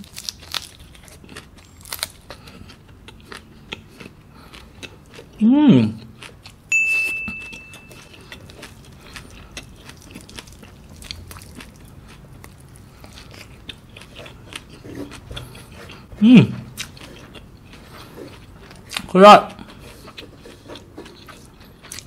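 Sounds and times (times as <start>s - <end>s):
person humming: 5.4s - 6.0s, 16.2s - 16.6s
chewing and wet mouth clicks: 6.0s - 16.0s, 16.7s - 22.0s
chiming tone: 6.7s - 8.1s.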